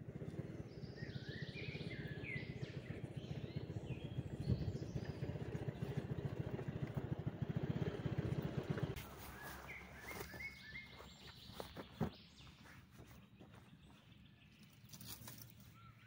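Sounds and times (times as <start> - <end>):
motorcycle engine pulsing: 0.0 - 11.9
bird chirps: 0.6 - 6.0, 9.0 - 16.0.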